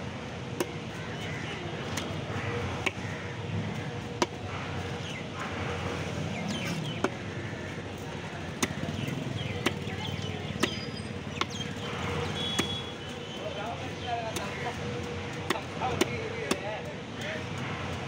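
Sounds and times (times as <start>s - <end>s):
knife chopping into wood: 8.6s - 9.9s.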